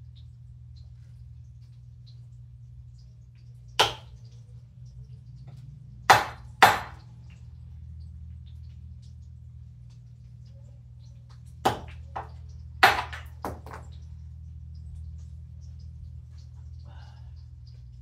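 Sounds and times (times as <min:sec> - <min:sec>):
low steady hum: 0:00.0 - 0:18.0
sharp knocks on a counter: 0:03.8 - 0:04.1, 0:06.1 - 0:07.0, 0:11.7 - 0:13.9.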